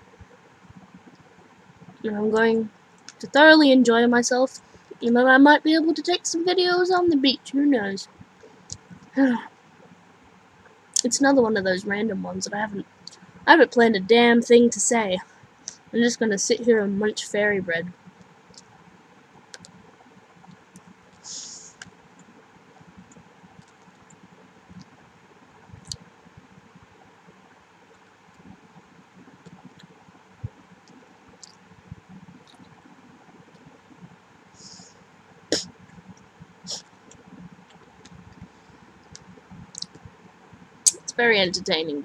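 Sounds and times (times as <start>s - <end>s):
breathy hiss: 21.2s - 22.0s, 34.4s - 37.6s.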